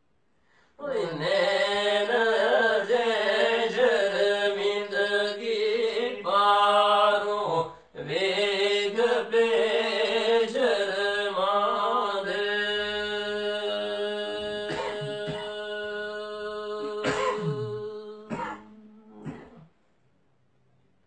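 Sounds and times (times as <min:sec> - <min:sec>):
men singing in chanting style: 0:00.8 - 0:18.7.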